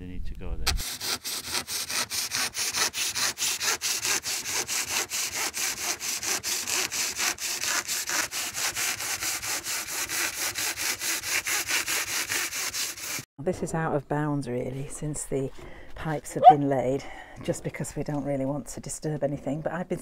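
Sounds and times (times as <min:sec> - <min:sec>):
handsaw cutting foam board: 0:00.7 - 0:13.3.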